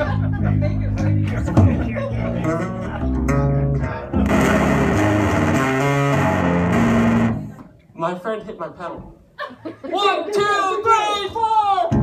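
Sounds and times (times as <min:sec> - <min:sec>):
electric guitar slow notes: 0:02.4 - 0:07.7.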